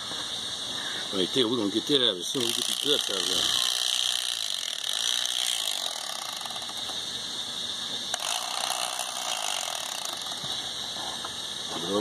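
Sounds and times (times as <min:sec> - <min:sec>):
electric knife buzzing: 0:02.0 - 0:07.1, 0:07.9 - 0:10.8.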